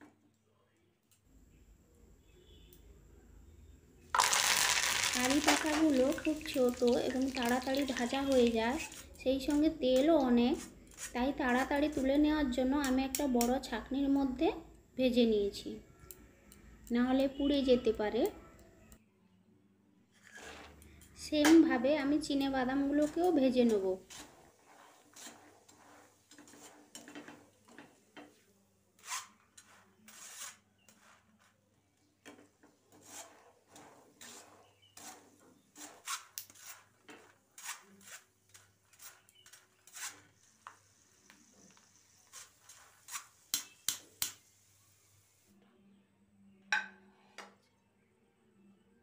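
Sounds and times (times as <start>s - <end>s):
faint oil sizzle: 4.2s - 14.3s, 20.3s - 31.5s, 32.3s - 45.5s.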